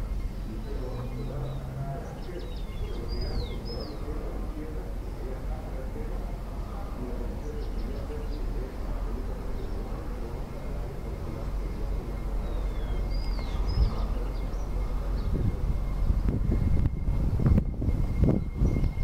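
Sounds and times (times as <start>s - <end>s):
bird chirps: 0.0s - 4.3s, 7.4s - 8.6s, 9.4s - 16.0s
steady low rumble: 0.0s - 19.0s.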